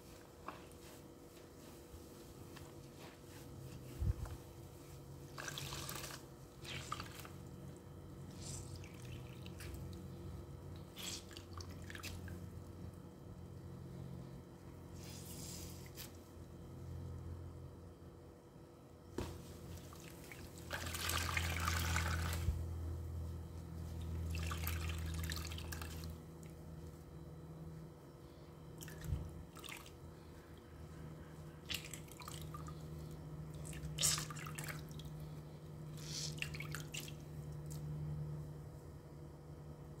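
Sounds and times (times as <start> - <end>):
sponge squeezed into water: 5.3 - 7.4, 33.8 - 34.9.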